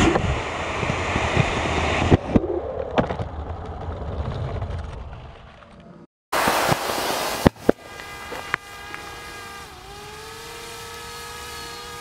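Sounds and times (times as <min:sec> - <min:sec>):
sharp pops: 0:06.4 - 0:09.1
rocket motor hissing: 0:06.4 - 0:12.0.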